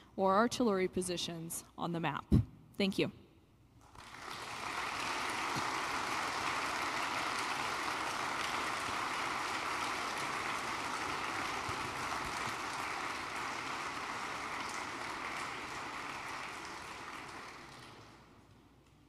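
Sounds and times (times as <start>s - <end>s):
audience applauding: 3.8s - 18.4s.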